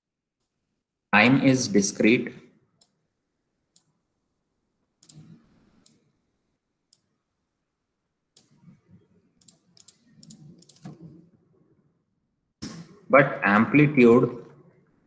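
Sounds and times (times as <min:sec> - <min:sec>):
computer mouse clicks: 0:03.8 - 0:04.0, 0:05.0 - 0:06.1, 0:06.9 - 0:07.1, 0:08.4 - 0:11.2.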